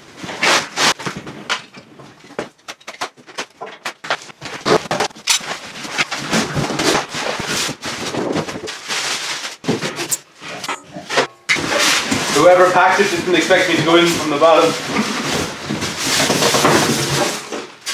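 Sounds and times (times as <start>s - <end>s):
cardboard carton being handled: 4.0s - 10.2s.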